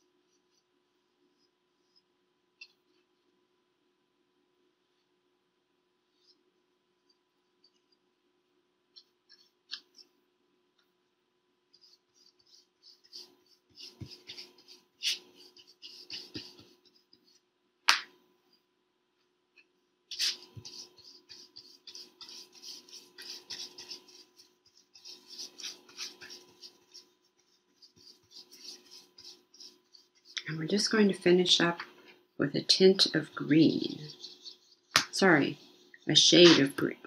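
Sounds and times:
paintbrush scratching paper: 8.9s - 10.2s, 11.7s - 17.5s, 20.1s - 37.0s.

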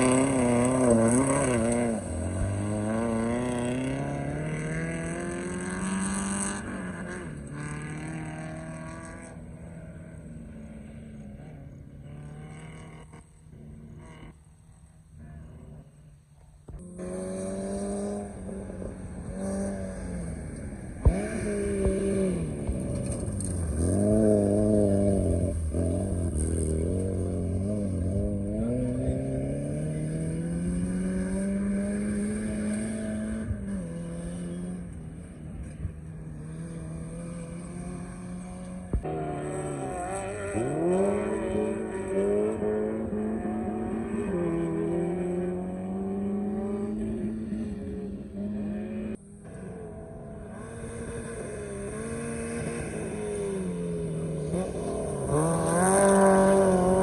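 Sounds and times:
engine revving hard: 35.6s - 49.2s, 50.6s - 57.0s.

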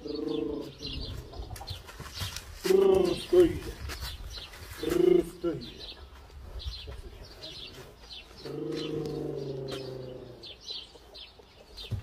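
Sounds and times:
small birds chirping: 0.0s - 12.0s.

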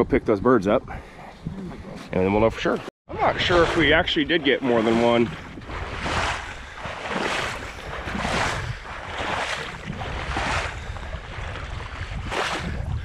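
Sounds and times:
water swishing rhythmically: 0.8s - 13.0s.

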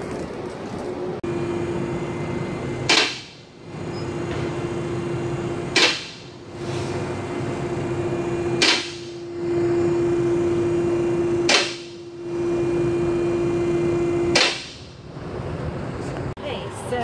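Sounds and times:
lift pump motor humming: 1.2s - 14.4s.

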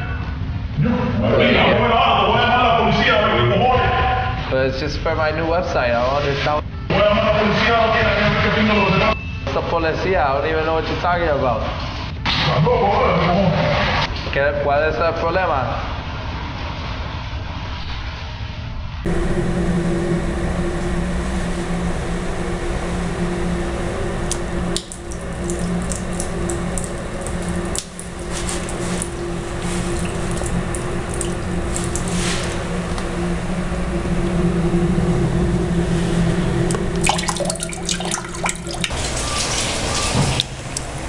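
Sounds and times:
low hum: 15.8s - 41.0s
water splashing on tiled floor: 24.2s - 33.0s, 36.7s - 41.0s.

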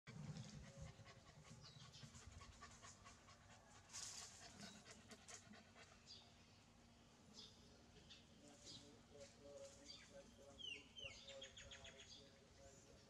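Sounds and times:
dog panting: 0.1s - 6.3s.

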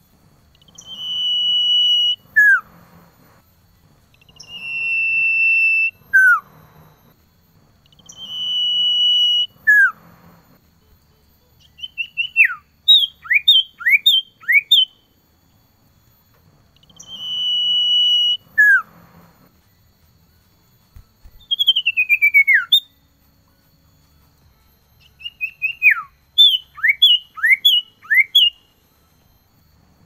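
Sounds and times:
bird whistling song: 0.5s - 2.8s, 4.1s - 6.9s, 7.8s - 10.2s, 11.6s - 15.1s, 16.8s - 19.0s, 21.2s - 23.0s, 25.0s - 28.7s.

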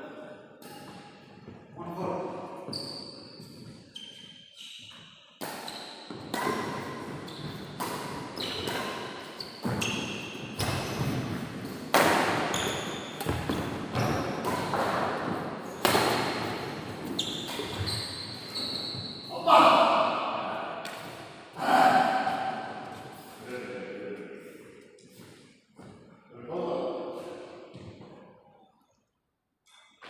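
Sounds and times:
shoes squeaking on court: 2.6s - 11.8s, 12.4s - 19.3s
shuttlecock hit by racquets: 5.4s - 9.8s, 10.6s - 17.9s.

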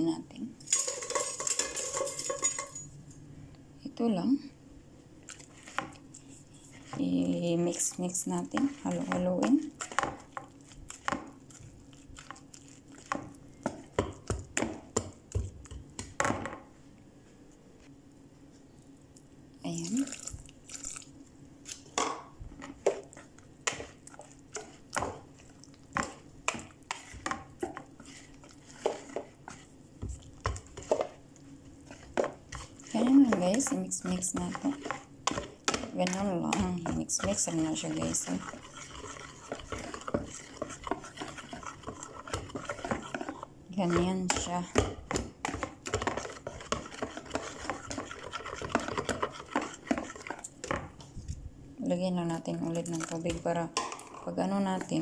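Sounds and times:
whisk beating batter in bowl: 5.3s - 16.2s, 22.6s - 50.9s.

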